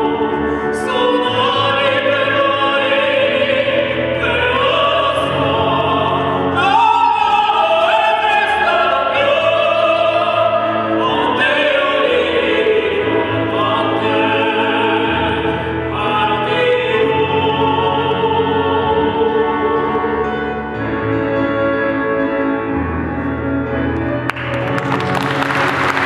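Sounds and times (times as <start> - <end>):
classical vocal duet with accompaniment: 0.0 - 26.0
applause: 24.3 - 26.0.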